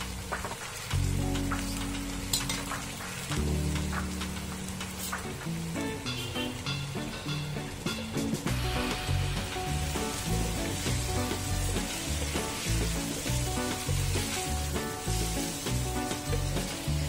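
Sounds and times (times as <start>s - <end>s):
background music with steady beat: 0.0s - 17.0s
food sizzling in a pan: 0.0s - 17.0s.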